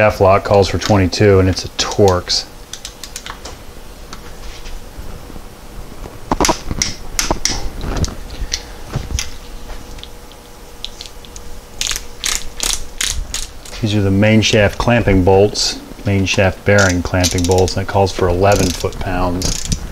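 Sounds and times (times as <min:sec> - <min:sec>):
metal hand tools clicking: 0:18.5 - 0:19.8.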